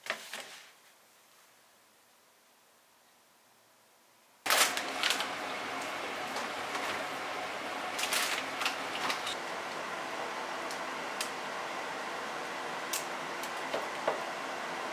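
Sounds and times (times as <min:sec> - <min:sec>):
kitchen background hiss: 0:00.0 - 0:14.9.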